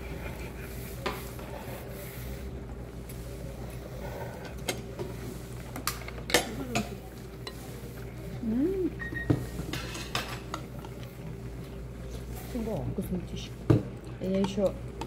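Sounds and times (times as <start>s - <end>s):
utensils clinking against dishes: 5.8s - 7.7s, 9.0s - 11.2s, 14.2s - 14.8s.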